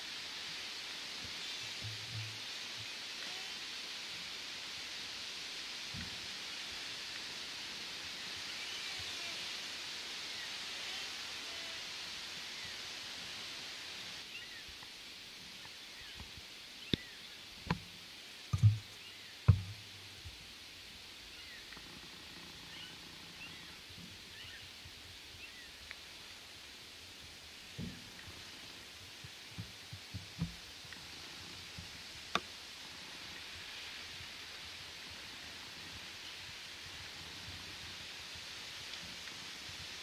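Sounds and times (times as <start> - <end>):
steady outdoor hiss: 0.0 - 40.0
sharp knocks and dull thumps: 1.8 - 2.4, 18.5 - 19.8, 29.5 - 30.6
faint bird chirps: 14.2 - 14.7, 16.8 - 17.5, 21.2 - 25.8.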